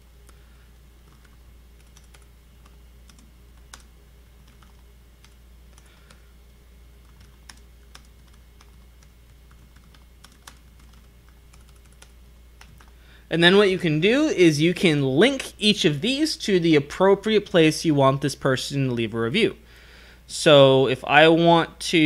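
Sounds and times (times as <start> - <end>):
steady low hum: 0.0 - 22.0
keyboard typing: 1.0 - 6.2, 7.0 - 13.0.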